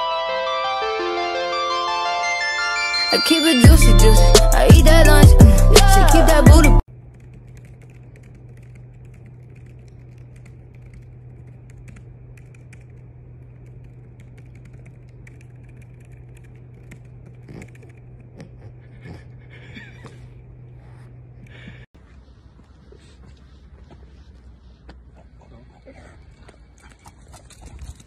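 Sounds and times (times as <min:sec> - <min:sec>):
steady low hum: 0:03.7 - 0:28.0
typing on laptop keyboard: 0:07.0 - 0:18.3.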